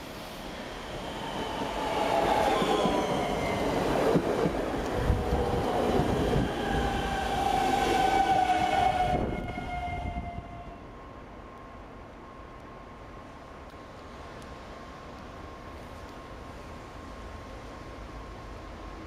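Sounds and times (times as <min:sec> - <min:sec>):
train wheels rumbling on rails: 0:00.0 - 0:10.7
electric train whine: 0:00.0 - 0:19.0.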